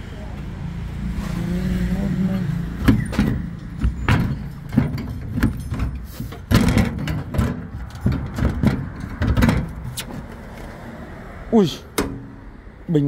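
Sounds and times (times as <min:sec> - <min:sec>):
loud metal clatter: 0:02.8 - 0:09.9
sheet-metal bonnet knocking and rattling: 0:02.8 - 0:10.3.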